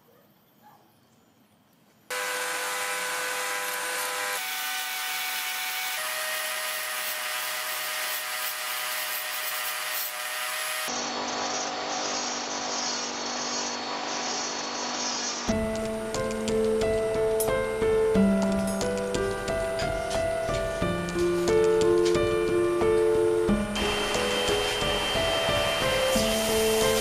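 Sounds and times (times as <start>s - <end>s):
rotary tool grinding steel: 2.1s - 15.5s.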